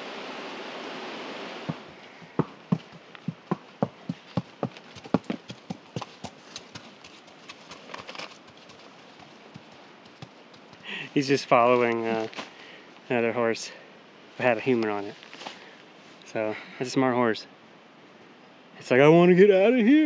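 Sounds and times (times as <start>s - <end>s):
horse hooves clip-clopping: 1.7s - 11.1s.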